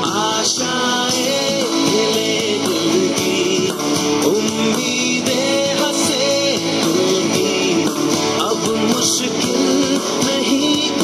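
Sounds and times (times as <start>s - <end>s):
pop-rock song with guitar: 0.0s - 11.0s.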